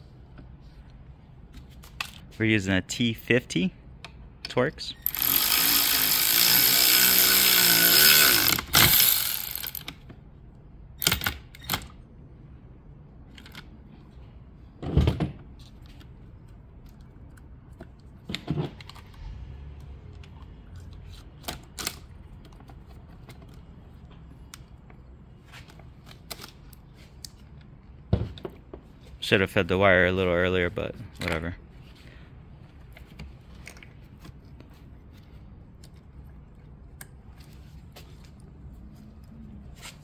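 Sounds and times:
electric ratchet spinning bolt: 5.0s - 10.0s
metal parts clicking and knocking: 5.0s - 10.0s.

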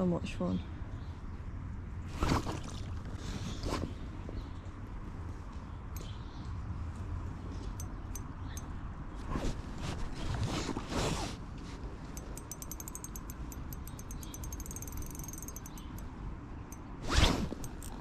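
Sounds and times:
rustle against microphone: 9.1s - 12.2s
handling rustle: 9.2s - 13.2s
fishing reel clicking: 12.2s - 16.1s, 17.6s - 18.0s.

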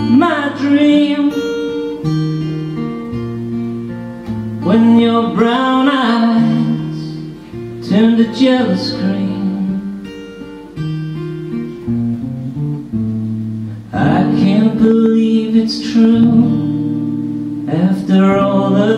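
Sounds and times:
man singing: 0.0s - 2.2s, 4.6s - 10.2s, 13.9s - 18.9s
acoustic guitar chords: 0.0s - 18.9s.

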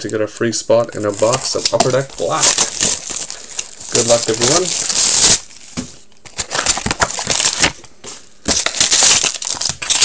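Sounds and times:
plastic shrink wrap crinkling: 0.8s - 10.0s.

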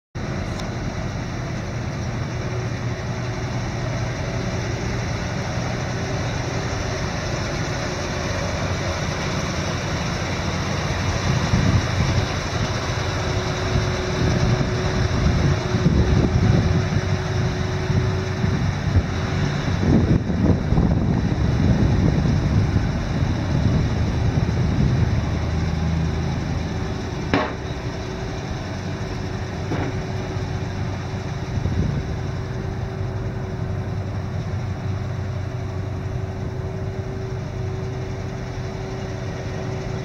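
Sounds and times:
truck engine idling: 0.2s - 40.0s
wind buffeting microphone: 10.7s - 34.3s.

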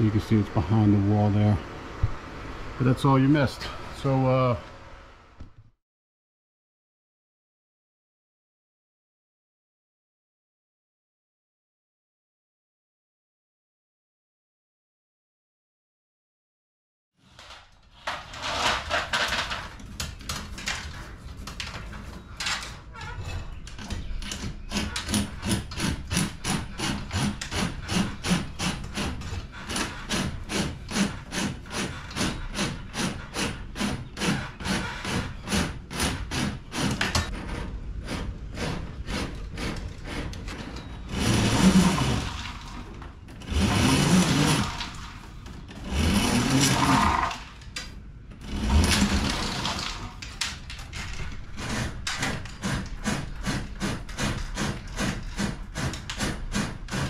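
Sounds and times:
hacksaw cutting metal: 23.8s - 47.6s, 48.4s - 50.4s, 51.4s - 57.0s
loud rasping saw strokes: 24.6s - 47.5s, 48.4s - 50.2s, 51.5s - 57.0s.

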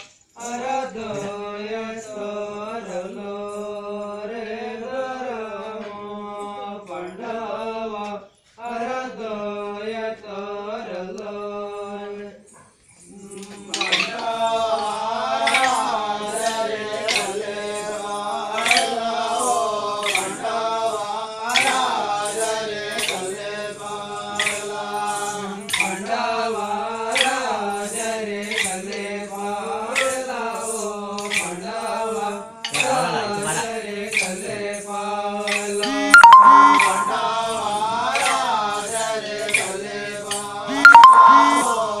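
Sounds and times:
sharp percussive beats: 35.8s - 37.9s, 40.7s - 41.8s.

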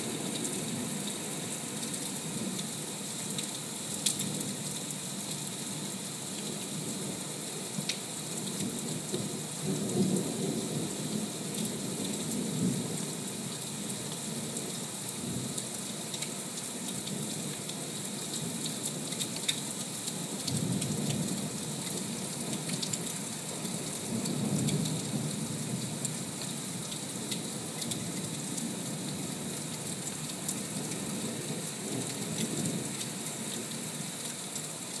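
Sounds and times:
rain falling steadily: 0.0s - 35.0s
sharp raindrop ticks: 3.3s - 4.9s, 15.6s - 25.1s, 31.8s - 34.7s.

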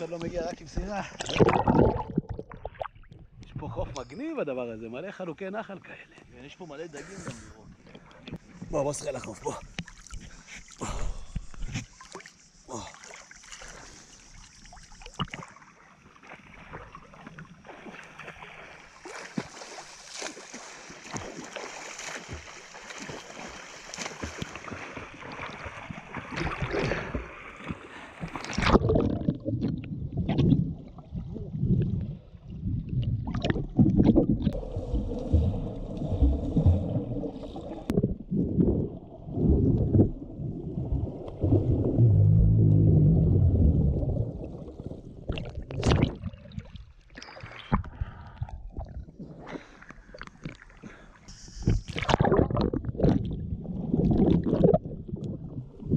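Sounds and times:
muffled underwater bubbling: 1.1s - 4.0s, 28.0s - 46.8s, 47.5s - 55.9s
water splashing from swimmers: 7.1s - 29.4s, 33.2s - 42.2s.

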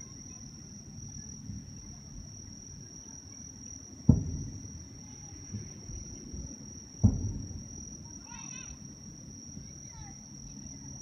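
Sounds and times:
distant firework booms: 4.0s - 4.8s, 7.0s - 7.9s.

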